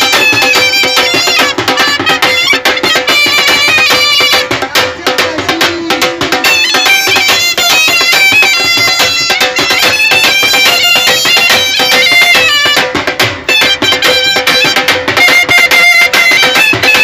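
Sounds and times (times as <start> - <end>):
end-blown pipe melody: 5.5 - 17.0.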